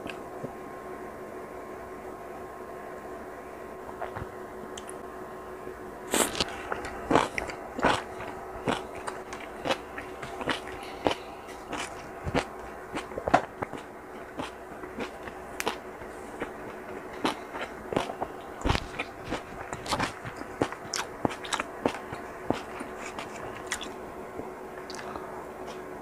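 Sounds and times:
faint steady hum: 0.0 - 26.0
wet chewing crunches: 6.1 - 24.0, 24.8 - 25.8.

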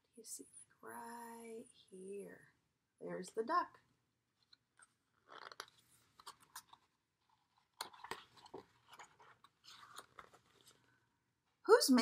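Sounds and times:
stiff paper pages turning: 4.4 - 10.9.

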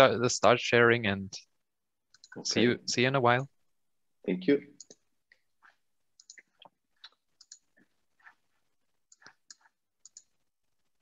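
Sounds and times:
faint computer clicks: 2.1 - 2.4, 6.2 - 7.9, 9.1 - 10.4.

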